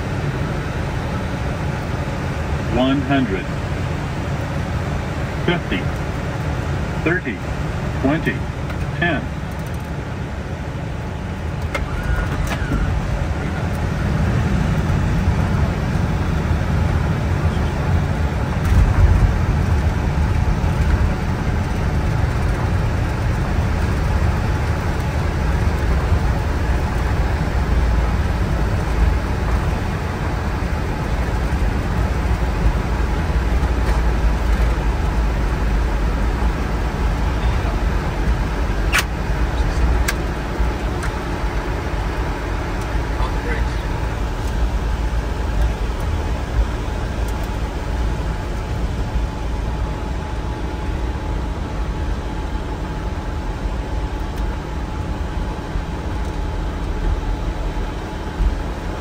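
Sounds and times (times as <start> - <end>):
engine and wheels rumbling on runway: 0.0 - 59.0
sharp click: 38.9 - 39.1.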